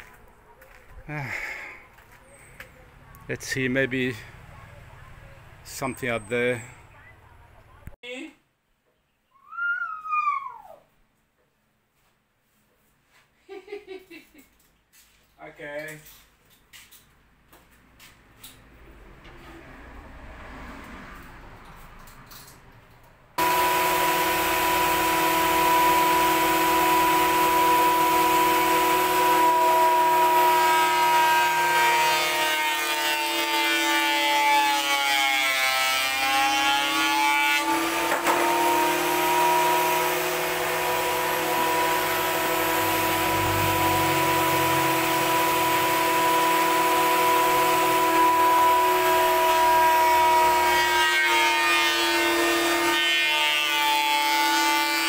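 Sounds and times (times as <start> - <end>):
electric power tool motor running: 23.4 - 33.6, 35.7 - 55.0.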